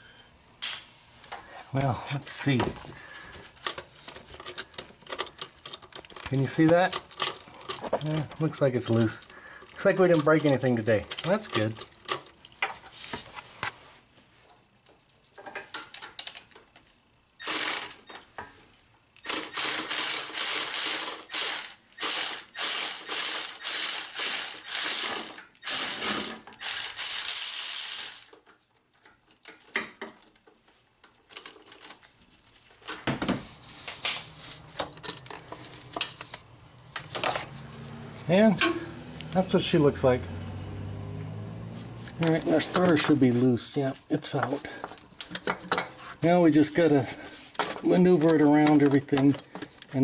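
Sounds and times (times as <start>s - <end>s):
ratchet clicking rapidly: 17.4s - 18.0s, 19.2s - 28.4s.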